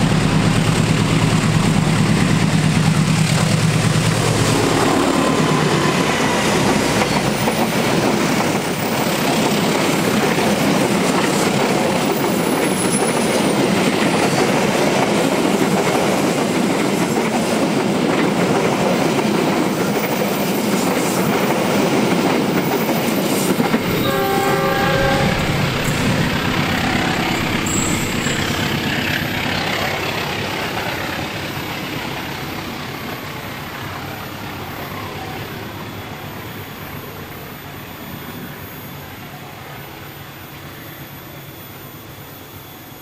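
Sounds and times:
train wheels clattering over rails: 0.0s - 24.0s
train horn blast: 23.7s - 28.6s.

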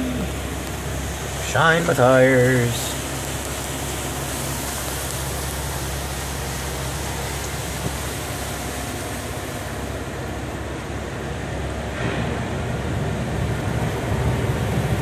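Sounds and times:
car wash water spray hissing: 0.0s - 15.0s
low hum: 0.0s - 15.0s.

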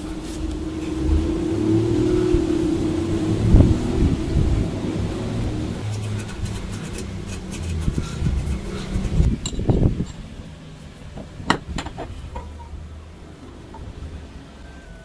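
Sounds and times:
low steady hum: 0.0s - 15.0s
steel parts clinking: 9.3s - 10.3s.

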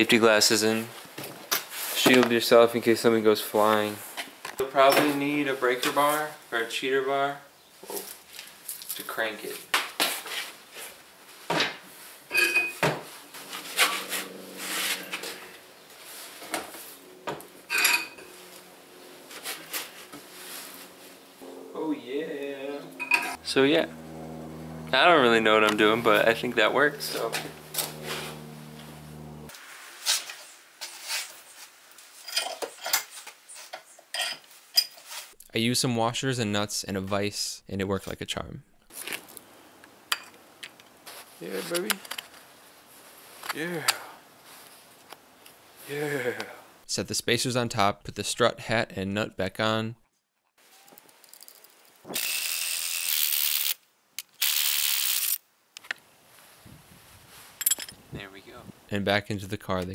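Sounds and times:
cordless power tool running: 13.2s - 29.6s
hand tools clinking on metal: 17.7s - 18.3s, 57.6s - 58.0s.

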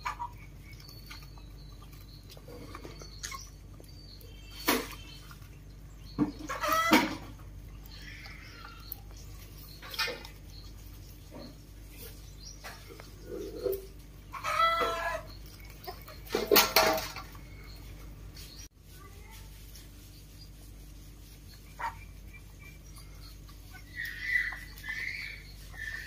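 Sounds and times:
animal squawking calls: 23.7s - 26.0s.

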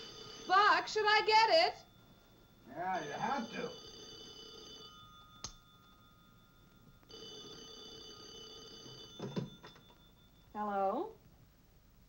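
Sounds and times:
telephone ringing: 0.0s - 11.2s.

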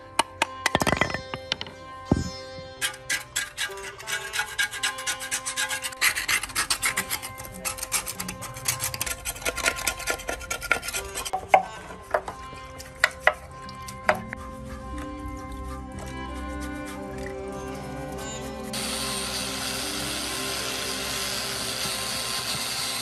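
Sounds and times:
sharp knocks: 0.4s - 2.7s
scraper scraping metal: 2.1s - 12.4s.

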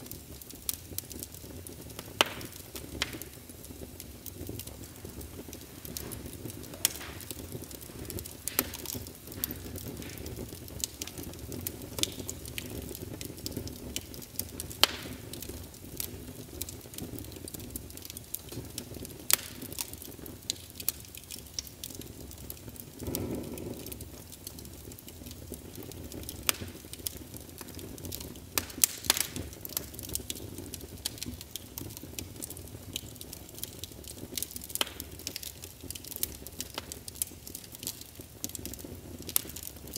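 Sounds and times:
crackling pops: 0.0s - 39.9s.

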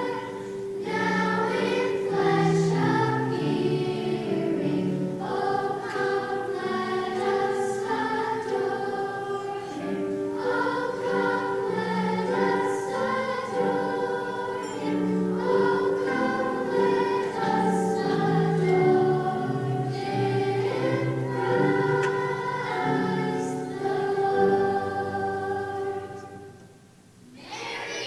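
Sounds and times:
children's choir singing: 0.0s - 28.0s.

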